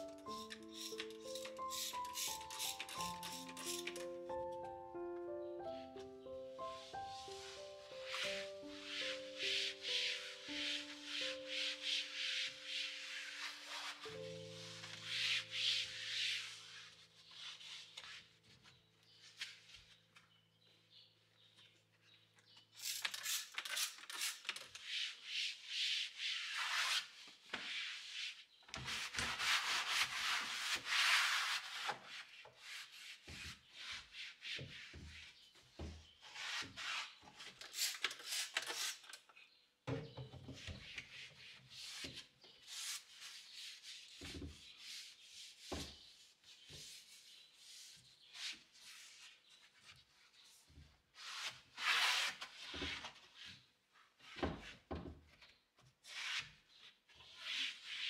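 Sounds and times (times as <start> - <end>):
rubbing and scraping: 0.1 - 4.1, 6.7 - 19.9, 22.8 - 39.0.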